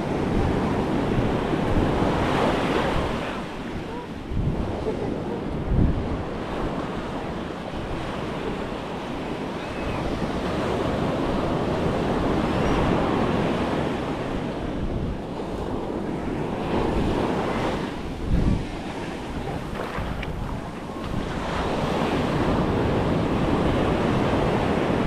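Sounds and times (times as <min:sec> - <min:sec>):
wind buffeting microphone: 0:00.0 - 0:25.0
surf washing up sand: 0:10.2 - 0:25.0.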